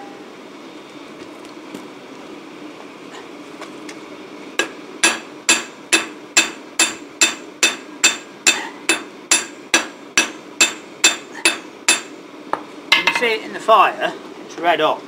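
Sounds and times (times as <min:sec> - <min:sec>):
hammer striking hot steel: 0:04.6 - 0:12.2.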